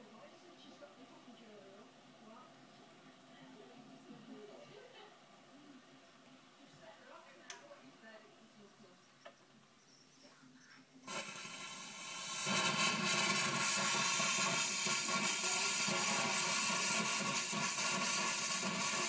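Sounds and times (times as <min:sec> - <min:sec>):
steam hissing from espresso machine: 0:11.1 - 0:19.0.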